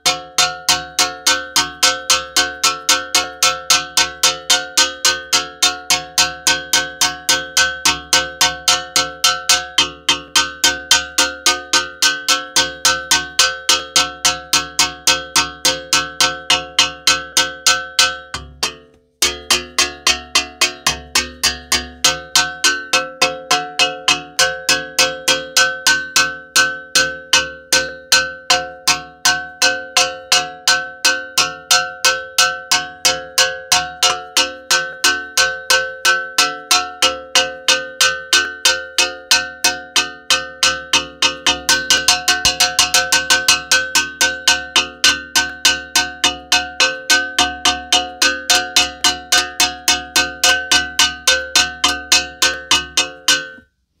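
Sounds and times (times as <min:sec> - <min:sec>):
metal cooking pot banged: 0:00.0 - 0:53.6.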